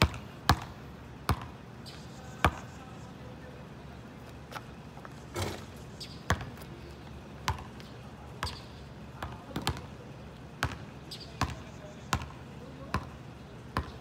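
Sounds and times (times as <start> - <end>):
basketball bouncing on asphalt: 0.0 - 1.6, 2.4 - 2.7, 5.4 - 6.7, 7.4 - 10.0, 10.6 - 14.0.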